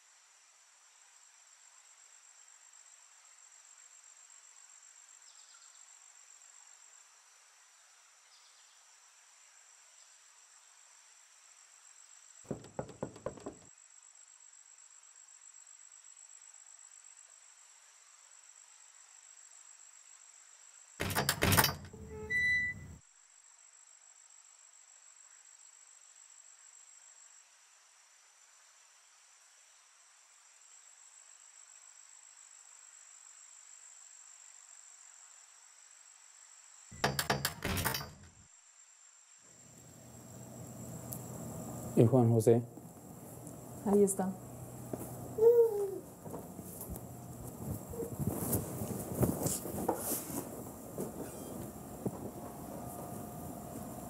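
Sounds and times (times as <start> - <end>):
crickets chirring: 0.3 - 54.0
door opening clatter: 12.5 - 13.7, 21.0 - 23.0, 37.0 - 38.3, 49.2 - 54.0
knocks on a door: 12.5 - 13.7, 21.0 - 22.0, 37.0 - 38.2.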